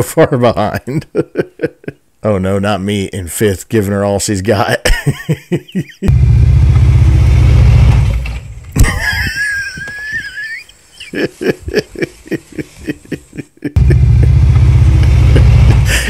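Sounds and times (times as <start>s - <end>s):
bursts of laughter: 4.8s - 6.1s, 8.8s - 14.5s, 15.1s - 16.0s
motorcycle engine running: 6.1s - 8.8s, 13.8s - 16.0s
motorcycle falling thud: 6.9s - 9.8s.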